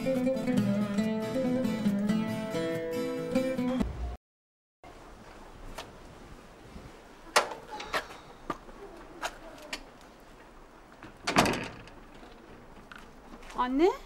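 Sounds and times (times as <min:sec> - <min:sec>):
gate clicks and knocks: 0:11.2 - 0:12.0
metal gate banging shut: 0:11.2 - 0:12.0.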